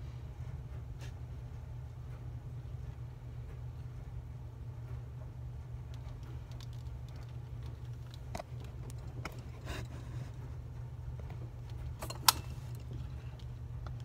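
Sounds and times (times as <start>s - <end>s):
steady low hum: 0.0s - 14.0s
handling clicks and taps: 5.8s - 9.6s.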